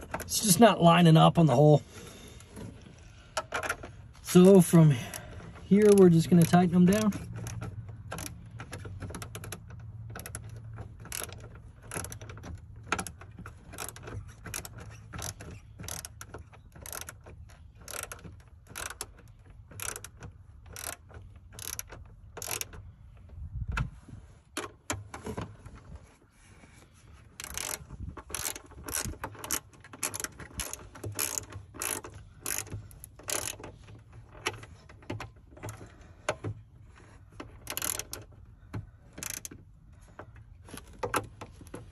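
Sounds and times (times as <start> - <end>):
ratcheting hand tool clicking: 5.0 - 22.8, 27.4 - 36.5, 37.4 - 38.4, 39.1 - 39.6.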